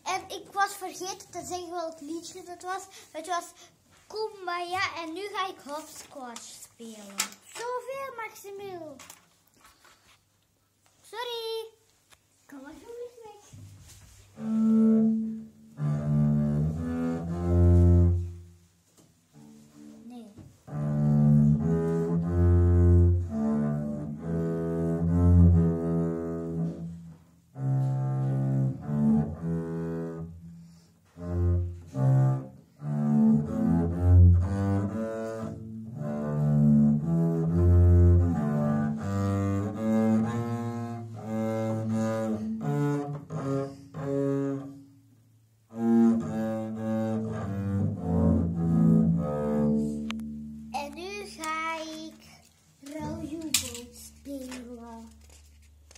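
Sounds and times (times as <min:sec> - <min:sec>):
bowed double bass: 0:14.3 - 0:18.5, 0:20.6 - 0:50.9.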